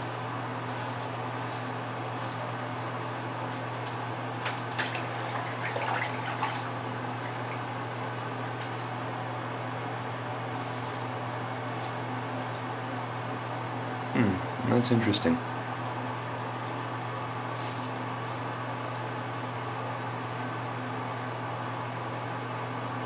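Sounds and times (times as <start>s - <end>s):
razor scraping stubble: 0.0s - 3.7s
steady low hum: 0.0s - 23.0s.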